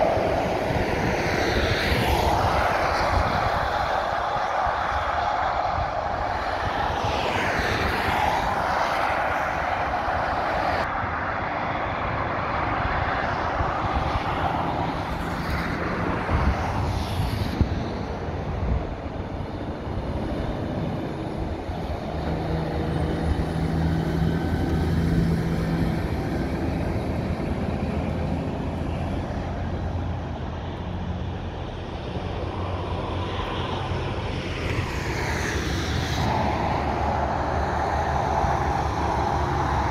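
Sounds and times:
heavy lorry engine hum: 0.0s - 7.2s, 17.5s - 39.9s
motorway traffic passing: 0.0s - 39.9s.

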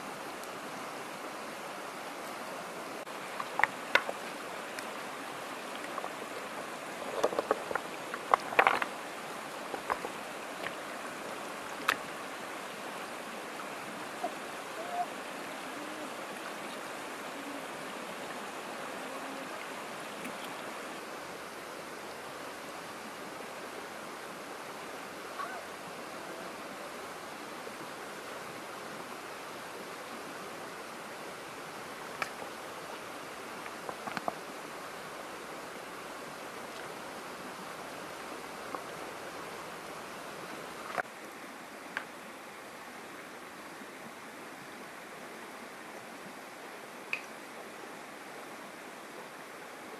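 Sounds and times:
shallow river running over rocks: 0.0s - 49.9s
stones clacking together: 7.0s - 8.9s.

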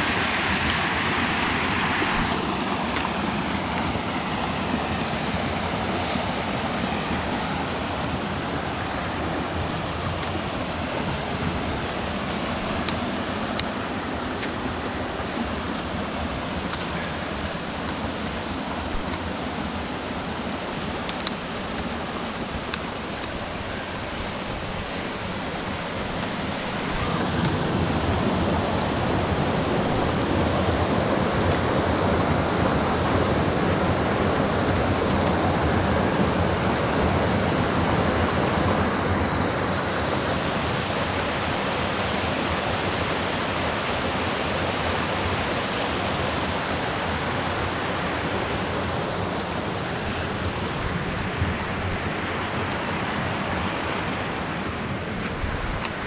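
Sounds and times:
stream rushing over boulders: 0.0s - 56.0s.

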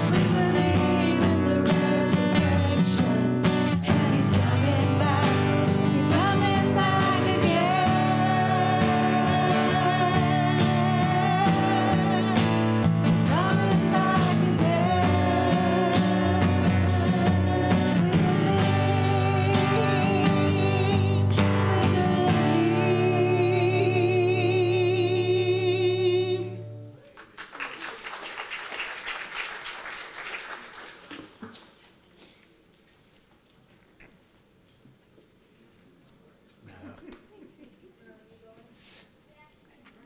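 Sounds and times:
women singing: 0.0s - 26.6s
worship band playing: 0.0s - 26.6s
congregation clapping: 27.0s - 31.9s.

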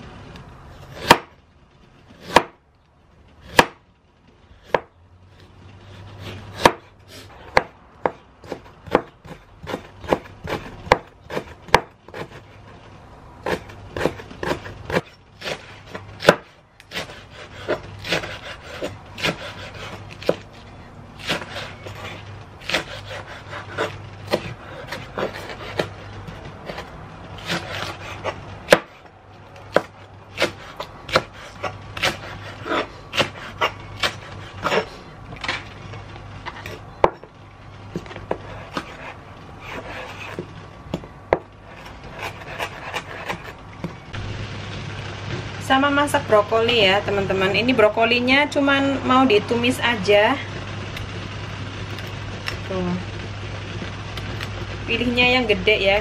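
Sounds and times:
knife chopping on plastic board: 7.5s - 12.4s, 13.4s - 20.4s, 29.7s - 34.8s.

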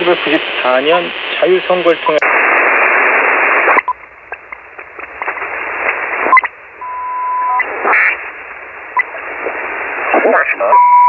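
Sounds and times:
radio band hiss: 0.0s - 10.9s
radio clicks: 2.2s - 6.6s, 7.4s - 10.2s.

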